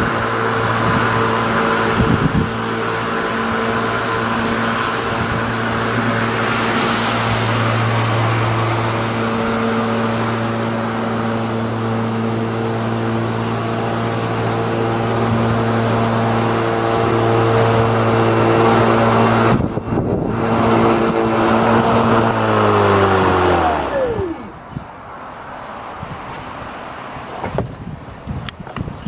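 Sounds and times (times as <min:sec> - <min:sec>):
electric lawn mower running: 0:00.0 - 0:24.7.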